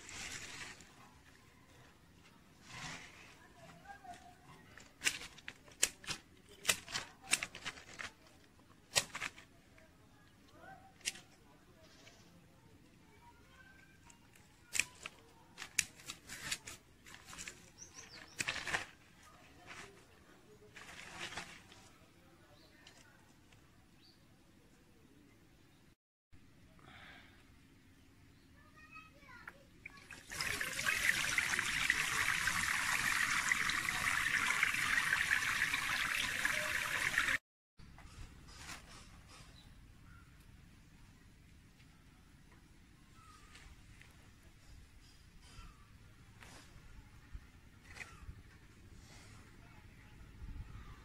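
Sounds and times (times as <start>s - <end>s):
leaves rustling: 0.0s - 9.7s, 14.7s - 22.1s, 29.9s - 37.4s
scissors snipping stems: 14.7s - 16.8s
water pouring into basin: 29.9s - 37.4s.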